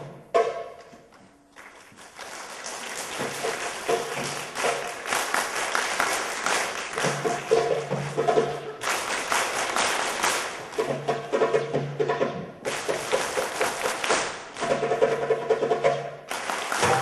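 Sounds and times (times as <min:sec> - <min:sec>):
audience applause: 0:01.5 - 0:10.9, 0:12.7 - 0:14.4, 0:16.3 - 0:17.0
faint drum notes: 0:02.7 - 0:17.0.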